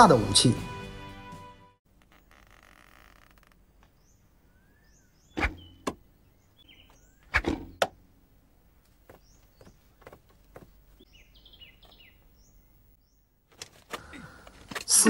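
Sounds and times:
small birds chirping: 0:02.0 - 0:14.5
arrows striking a target: 0:05.3 - 0:06.0, 0:07.2 - 0:08.0.

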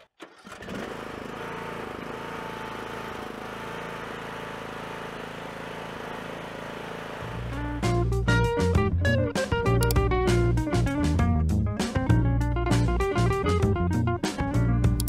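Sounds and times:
lawn mower engine running: 0:00.0 - 0:10.4.

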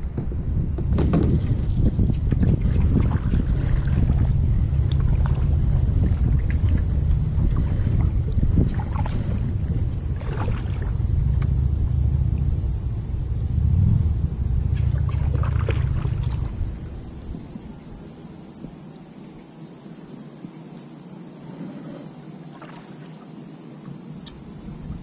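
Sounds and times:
kayak paddle strokes: 0:00.0 - 0:17.1
low microphone rumble: 0:00.0 - 0:18.7
water splashes and drips: 0:01.0 - 0:12.5, 0:13.4 - 0:16.8, 0:22.5 - 0:23.2.

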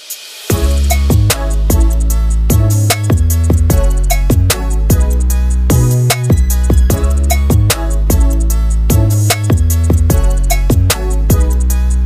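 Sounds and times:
bass and drum beat: 0:00.0 - 0:12.0.

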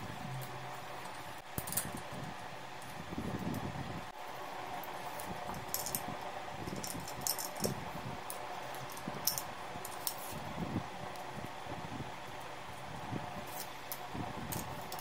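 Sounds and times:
steady background hum: 0:00.0 - 0:15.0
metal clinks and jingles: 0:06.7 - 0:07.8.

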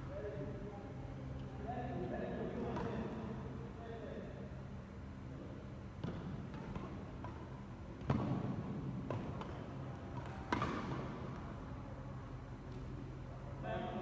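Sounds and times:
steady low hum: 0:00.0 - 0:14.0
racquets hitting shuttlecock: 0:06.0 - 0:11.6.

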